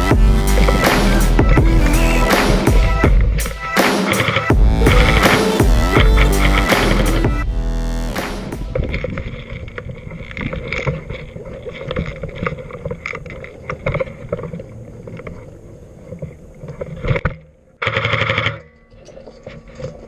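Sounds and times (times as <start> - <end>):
gear rattling: 0.0 - 7.4
footsteps: 0.0 - 7.5, 8.2 - 17.3.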